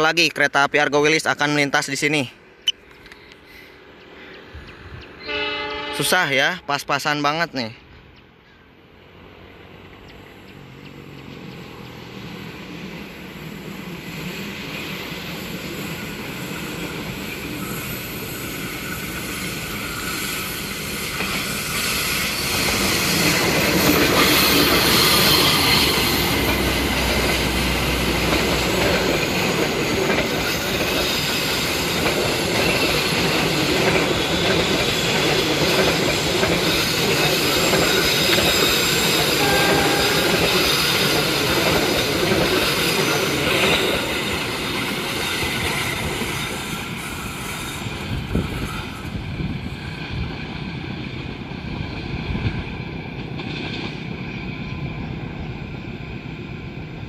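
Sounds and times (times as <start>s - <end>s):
diesel locomotive: 0.0s - 57.0s
train wheels on rails: 7.9s - 57.0s.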